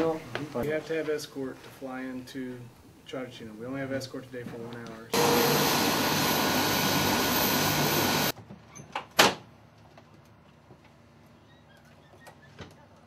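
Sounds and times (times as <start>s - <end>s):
helicopter engines running: 5.2s - 8.3s.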